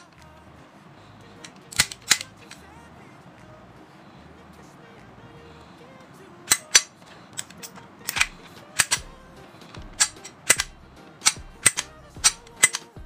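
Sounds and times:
pistol action clicking: 1.4 - 2.6, 6.5 - 13.0.

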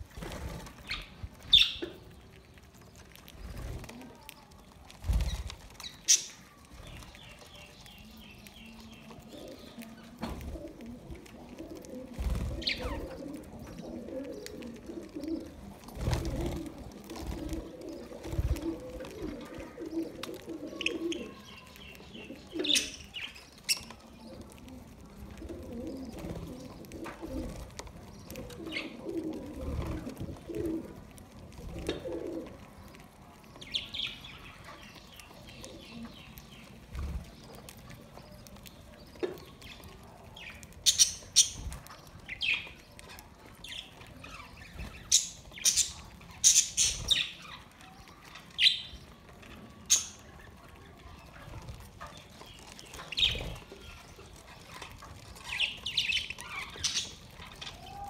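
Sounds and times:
budgerigars chirping and chattering: 0.8 - 2.0, 5.2 - 10.4, 12.4 - 13.8, 20.7 - 24.0, 40.4 - 47.6, 52.0 - 57.8.

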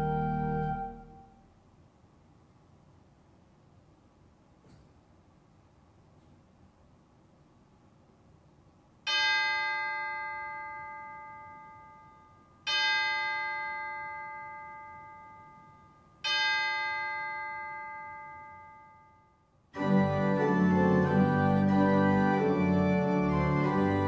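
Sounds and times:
organ chime ringing: 0.0 - 1.5, 9.1 - 24.0.

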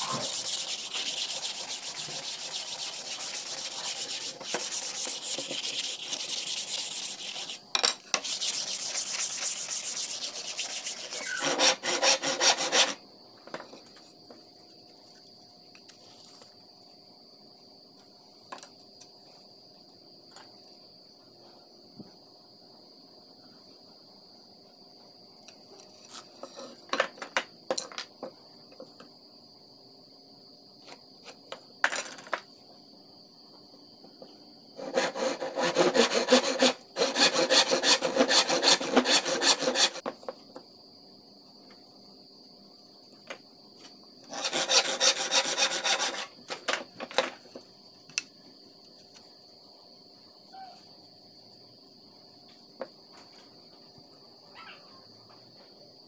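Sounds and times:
hand tool scraping wooden board: 0.0 - 13.0, 34.8 - 40.1, 44.3 - 46.3
high insect trill: 0.0 - 56.0.

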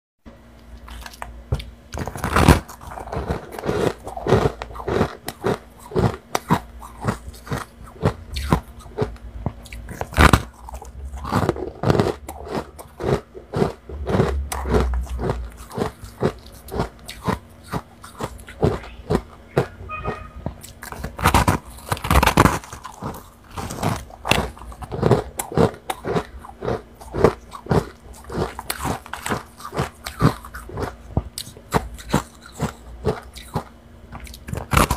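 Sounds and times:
frost crunching: 1.9 - 33.6.

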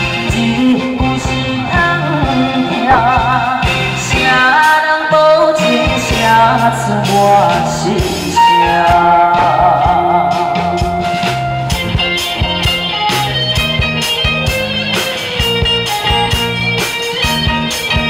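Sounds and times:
man singing into a microphone: 0.0 - 10.8
band with drums and keyboards: 0.0 - 18.0.

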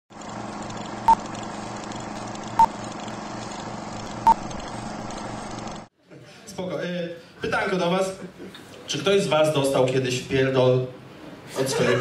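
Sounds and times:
low pulsing hum: 0.1 - 5.9.

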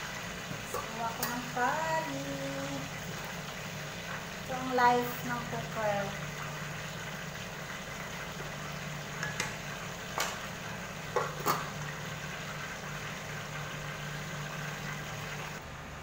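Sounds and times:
pot lid clinking against pot: 11.2 - 11.7.

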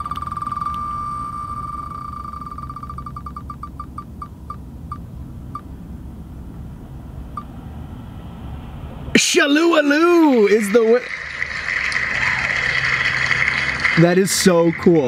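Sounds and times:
spinning wheel ticking: 0.0 - 4.3
low rumble: 4.4 - 9.2.

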